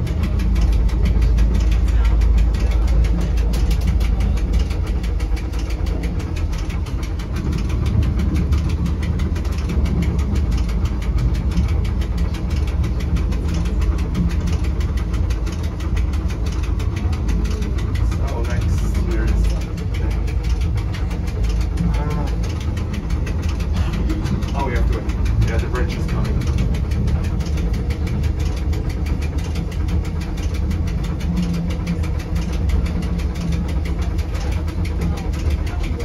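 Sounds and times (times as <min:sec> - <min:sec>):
fast even train clatter: 0:00.0 - 0:36.0
train motor rumble: 0:00.0 - 0:36.0.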